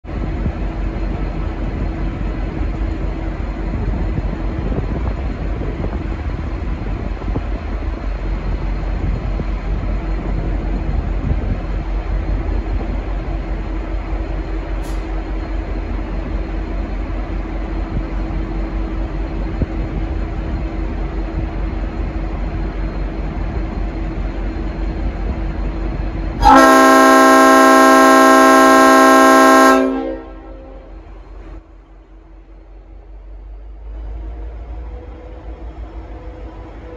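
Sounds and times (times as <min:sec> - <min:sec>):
diesel locomotive rumble: 0:00.0 - 0:36.9
air horn chord: 0:26.4 - 0:30.9.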